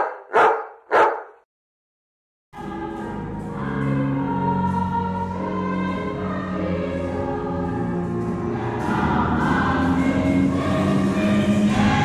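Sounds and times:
choir singing held chords: 2.6s - 12.0s.

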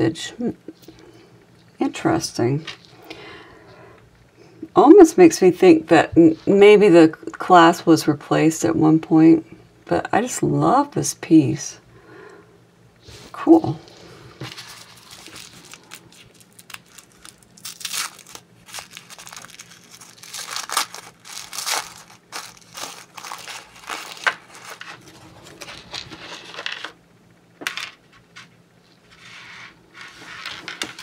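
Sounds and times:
tissue paper crinkling: 13.9s - 26.6s.

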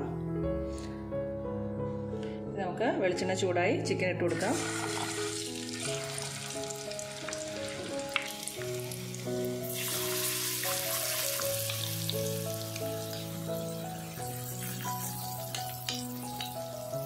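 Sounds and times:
soft background melody: 0.0s - 17.0s
chicken sizzling in oil: 4.4s - 17.0s.

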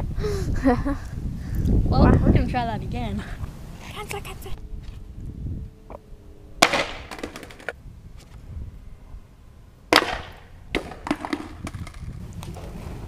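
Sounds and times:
skateboard clattering: 6.6s - 7.8s, 9.9s - 13.0s.

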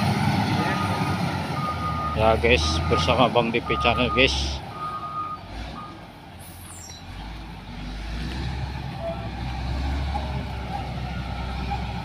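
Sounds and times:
diesel engine rumbling: 0.0s - 12.0s.

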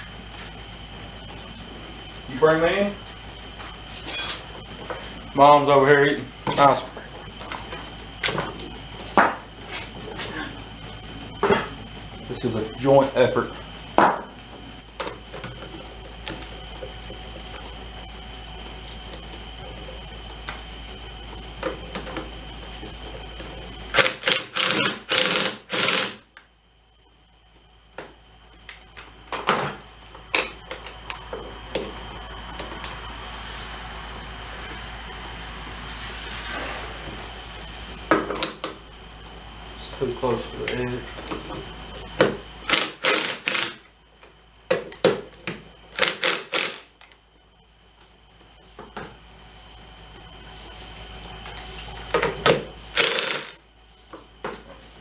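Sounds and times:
steady hum: 0.0s - 44.6s, 45.8s - 54.2s
impact driver rattling bursts: 23.9s - 26.2s, 42.7s - 43.8s, 45.9s - 46.9s, 52.9s - 53.6s.

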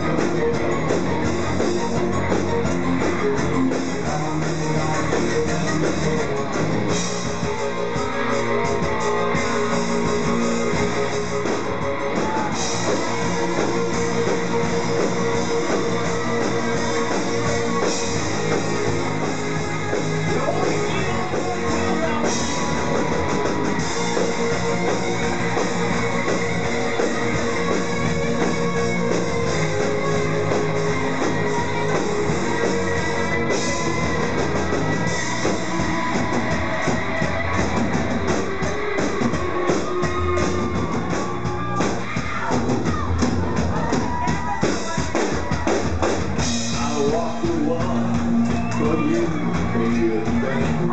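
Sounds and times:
drum kit: 0.0s - 50.9s
electric guitars: 0.0s - 50.9s
man singing: 3.6s - 6.7s, 46.6s - 50.9s.

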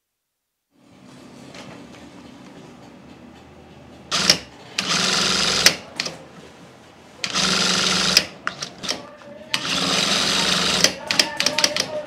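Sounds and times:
sewing machine stitching: 4.1s - 6.1s, 7.2s - 9.0s, 9.6s - 12.0s.

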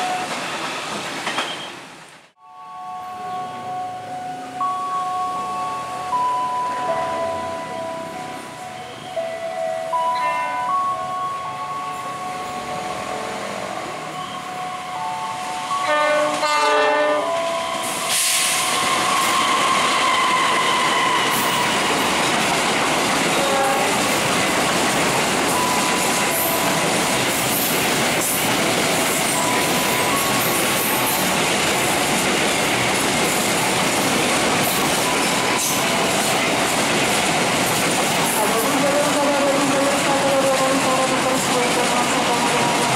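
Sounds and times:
freight train wheels rumbling: 3.4s - 42.9s.

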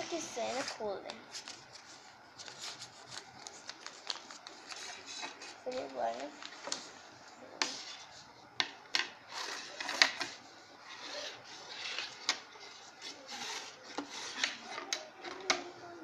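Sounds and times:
ruler scraping along paper: 0.0s - 3.1s, 4.6s - 6.1s, 7.6s - 8.3s, 9.3s - 15.0s
paper creased on wooden table: 0.0s - 6.8s, 9.3s - 14.9s.

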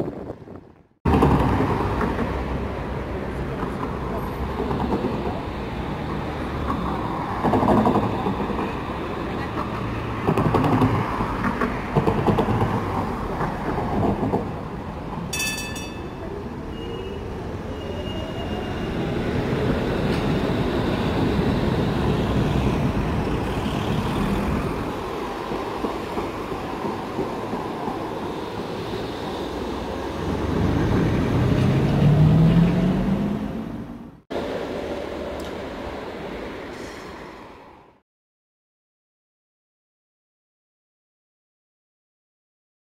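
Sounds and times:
tram wheels knocking over rail joints: 9.6s - 14.6s
tram chime ringing: 15.3s - 22.4s.

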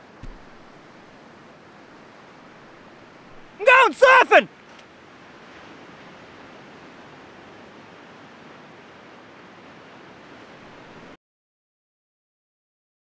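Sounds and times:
surf breaking on beach: 2.3s - 4.5s.

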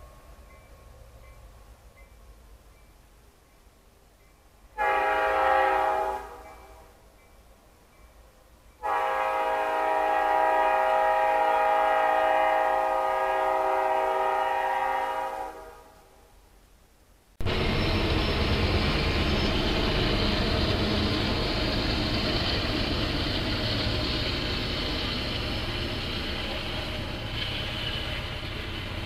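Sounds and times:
locomotive air horn blasts: 4.8s - 6.9s, 8.8s - 16.1s.

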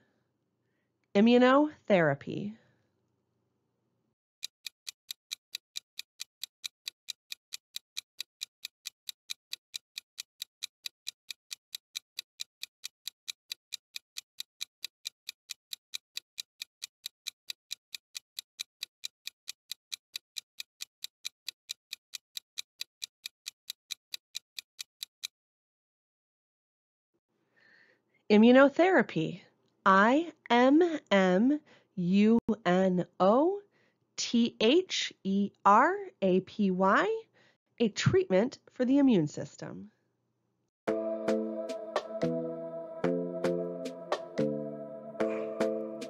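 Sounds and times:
clock ticking: 4.4s - 25.3s.

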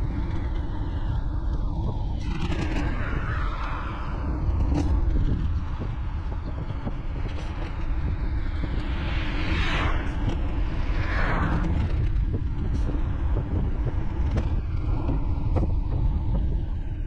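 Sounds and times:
wind rumble on microphone: 0.0s - 17.0s.

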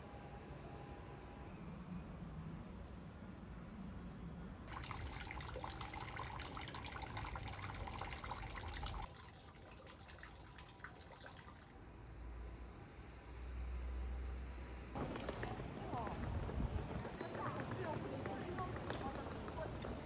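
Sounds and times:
water trickling into stone basin: 4.7s - 11.7s.

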